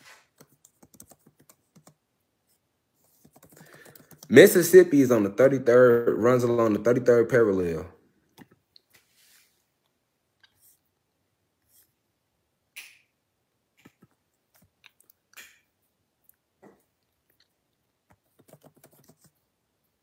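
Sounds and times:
fingers tapping touchscreen: 0:00.3 - 0:02.0, 0:03.0 - 0:04.3, 0:18.1 - 0:19.4.

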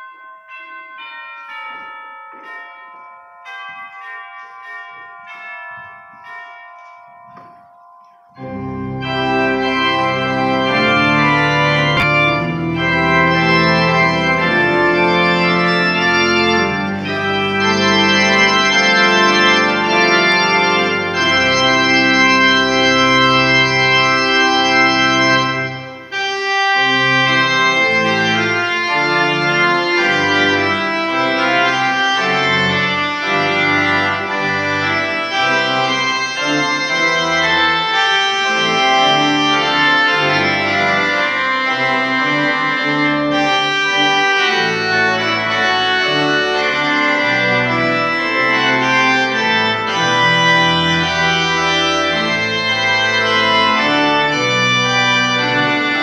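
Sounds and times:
bell-like tones: 0:00.0 - 0:08.9
church organ chords: 0:00.0 - 0:56.0.

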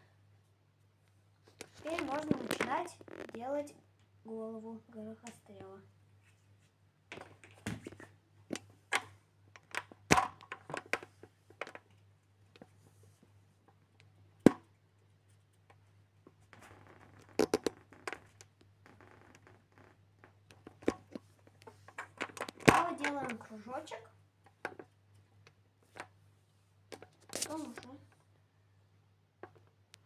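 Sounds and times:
rubbing and scraping plasticine: 0:01.5 - 0:03.5.

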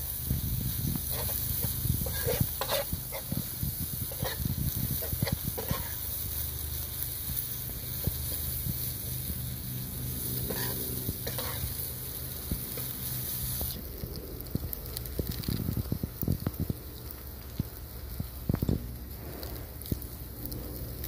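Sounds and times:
noodles sizzling in a frying pan: 0:00.0 - 0:21.0
metal spatula scraping a pan: 0:01.0 - 0:06.2, 0:10.1 - 0:12.0.

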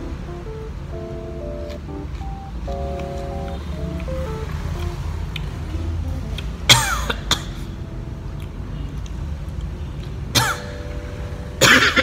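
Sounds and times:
man coughing: 0:06.7 - 0:07.6, 0:10.4 - 0:10.7, 0:11.6 - 0:12.0.

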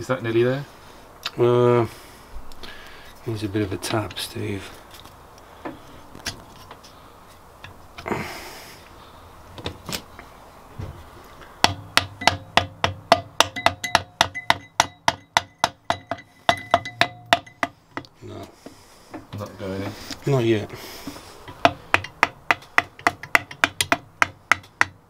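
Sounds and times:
mallet tapping metal cylinder: 0:11.6 - 0:18.1, 0:21.5 - 0:25.0.

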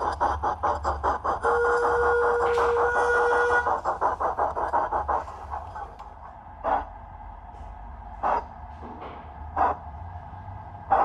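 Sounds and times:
fast flutter of exhaust beats: 0:00.0 - 0:06.3
model steam locomotive chuffs: 0:00.0 - 0:06.8
steady low hum: 0:00.0 - 0:11.0.

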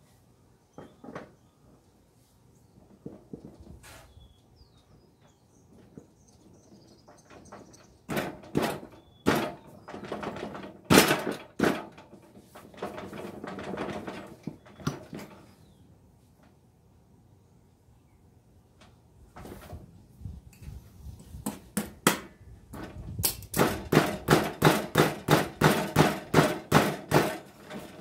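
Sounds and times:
metal rattling: 0:06.8 - 0:15.5
metal clanks and knocks: 0:07.0 - 0:15.5, 0:22.7 - 0:28.0.

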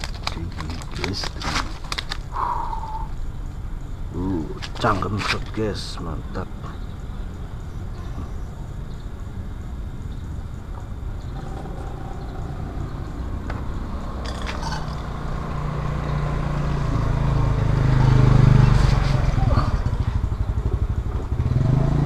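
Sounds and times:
sharp clicks: 0:00.0 - 0:02.3
low rumble: 0:07.6 - 0:21.3
motorcycle engine running: 0:10.6 - 0:22.0.

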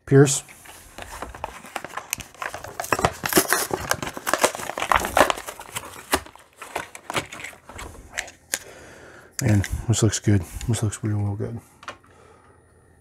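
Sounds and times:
plastic packaging crinkling: 0:00.6 - 0:08.6.

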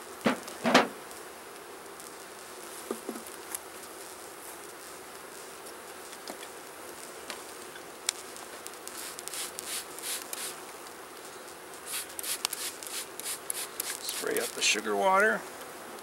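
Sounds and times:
bees buzzing: 0:00.0 - 0:16.0
short rubbing and scraping noises: 0:11.9 - 0:14.6.

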